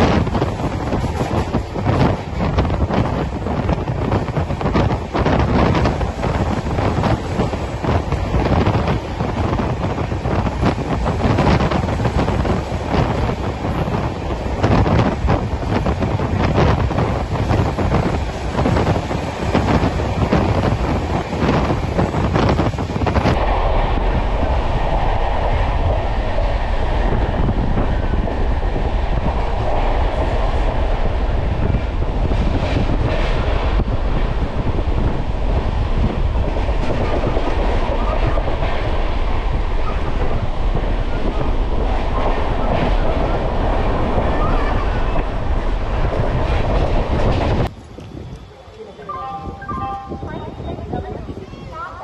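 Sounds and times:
train rail rumble: 0:00.0 - 0:52.0
wind buffeting microphone: 0:00.0 - 0:52.0.

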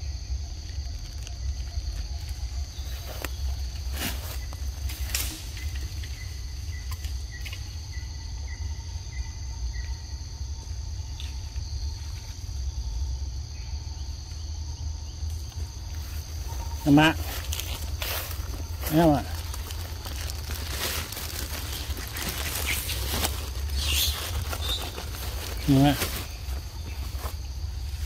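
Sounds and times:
insects buzzing: 0:00.0 - 0:28.0.

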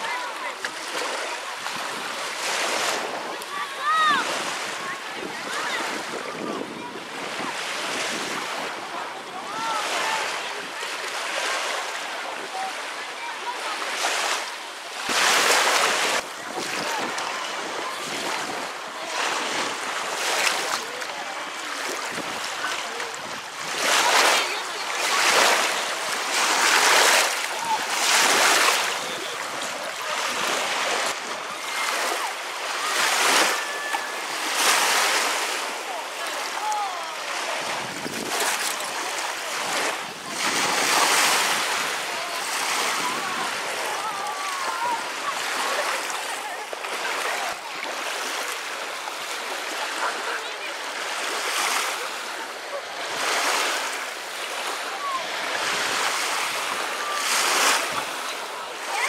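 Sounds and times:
lake water sloshing at shore: 0:00.0 - 0:59.0
small waves lapping: 0:00.0 - 0:59.0
wind on microphone: 0:04.2 - 0:09.7, 0:37.6 - 0:38.7
wind buffeting microphone: 0:37.6 - 0:38.6.

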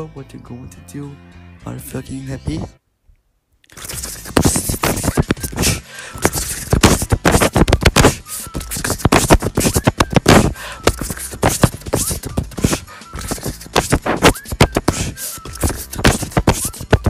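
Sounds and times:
person beatboxing: 0:03.7 - 0:17.0.

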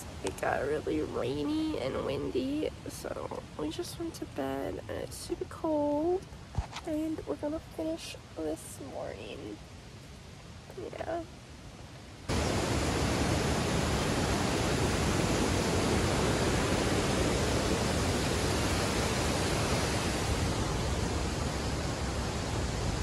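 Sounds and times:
waterfall rushing: 0:12.3 - 0:23.0.

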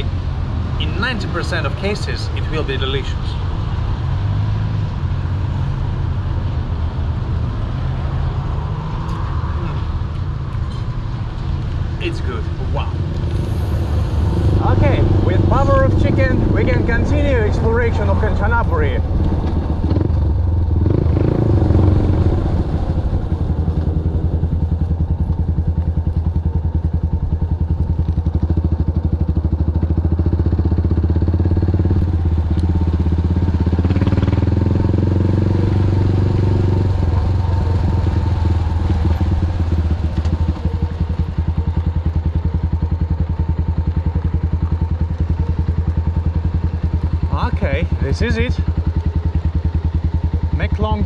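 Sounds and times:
motorcycle engine running: 0:11.2 - 0:51.0.

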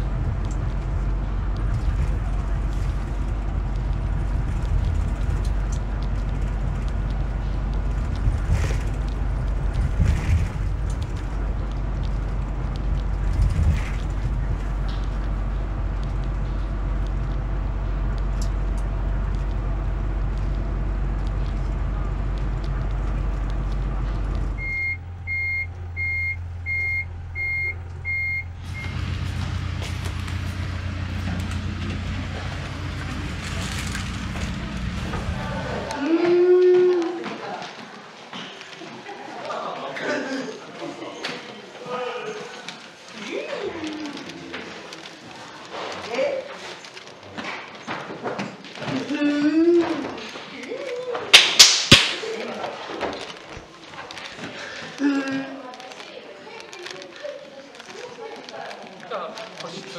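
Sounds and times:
bus interior rumble: 0:00.0 - 0:40.2, 0:40.9 - 0:46.1
short electronic beeps: 0:24.6 - 0:29.0
plastic packet crackling: 0:42.4 - 0:47.4, 0:50.5 - 0:59.9.

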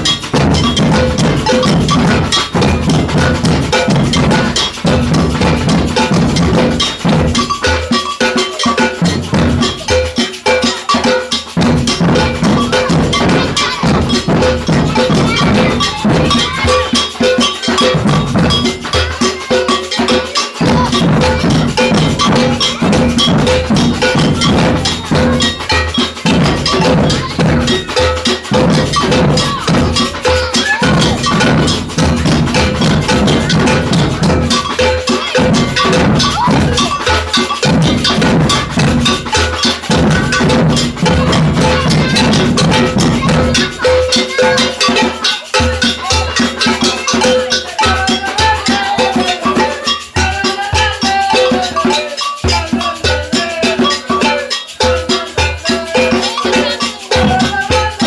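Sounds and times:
bass drums: 0:00.0 - 0:07.9, 0:20.6 - 0:45.0
agogo bell two-tone pattern: 0:00.0 - 0:58.0
snare drums: 0:00.0 - 0:58.0.

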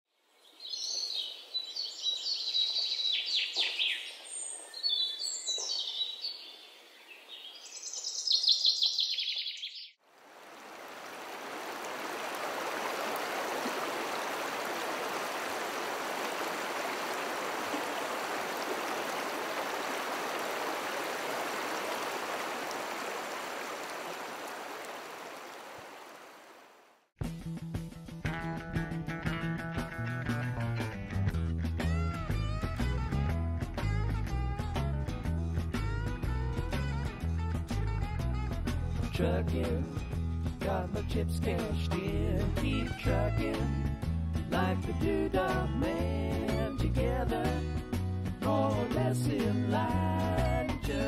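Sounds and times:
songbirds singing: 0:00.2 - 0:10.0.

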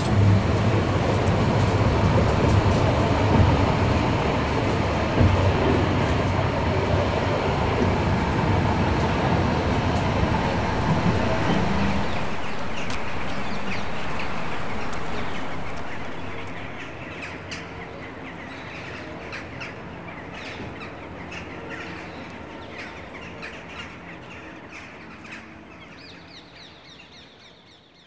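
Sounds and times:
steady background noise: 0:00.0 - 0:26.8
loud rumble: 0:09.3 - 0:16.9
birds chirping and calling: 0:10.4 - 0:17.4.

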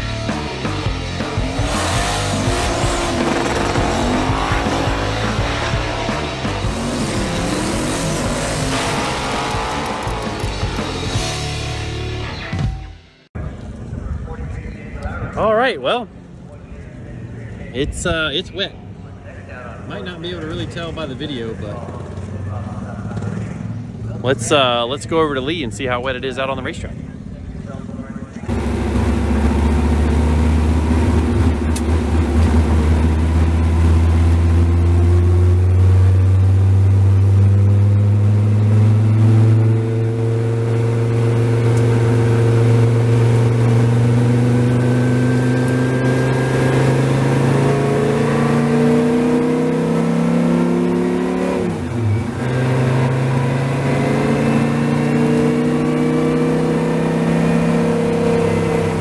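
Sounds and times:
race car engine accelerating: 0:00.0 - 0:12.5, 0:28.4 - 0:59.0.

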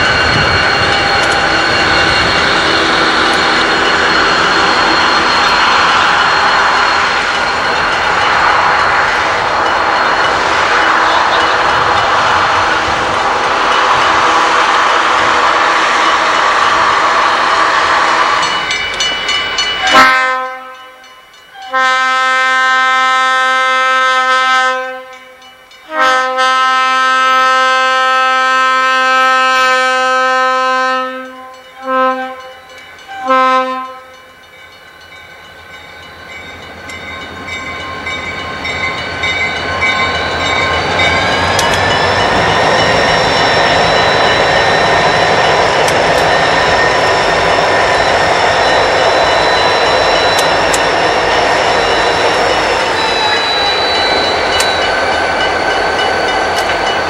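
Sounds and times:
train rumble passing: 0:00.0 - 0:20.4, 0:26.8 - 0:57.0
locomotive air horn blasts: 0:19.8 - 0:21.0, 0:21.6 - 0:25.2, 0:25.9 - 0:32.6, 0:33.2 - 0:34.2.

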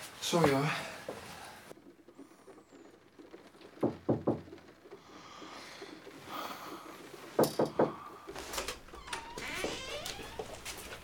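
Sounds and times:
knocks on wooden door: 0:03.8 - 0:04.6, 0:07.4 - 0:08.0.

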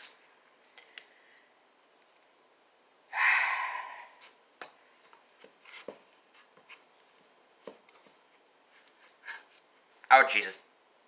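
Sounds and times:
loud huff of breath: 0:03.1 - 0:04.2.

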